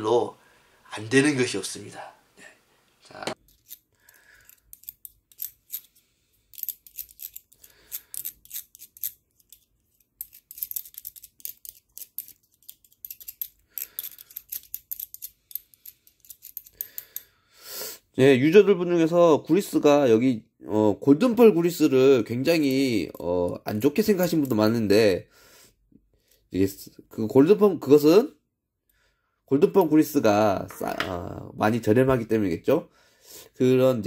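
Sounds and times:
metallic clicks and scrapes of gears: 3.4 - 17.3.

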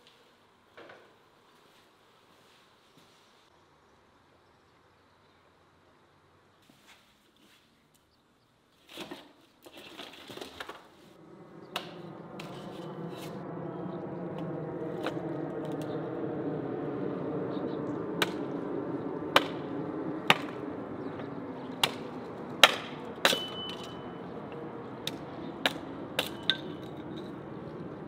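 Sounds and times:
steady low hum: 11.1 - 28.0.

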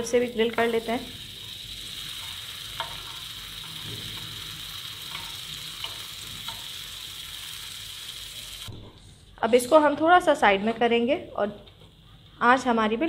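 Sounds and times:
meat sizzling on grill pan: 0.0 - 8.7.

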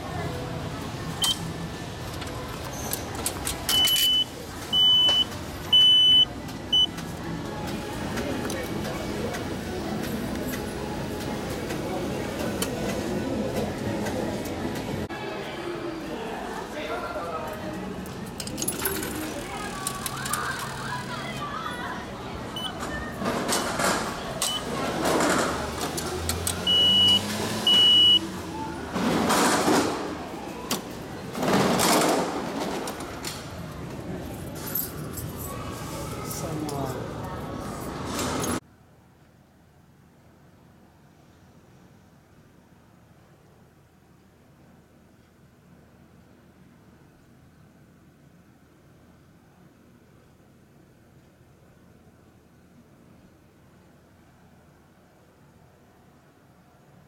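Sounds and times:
station background noise: 0.0 - 41.0
ticket dispensing clatter: 1.1 - 15.0, 18.1 - 21.4
ticket machine high beeps: 1.2 - 1.5, 3.7 - 6.9, 22.6 - 22.8, 24.4 - 24.8, 26.6 - 28.2.

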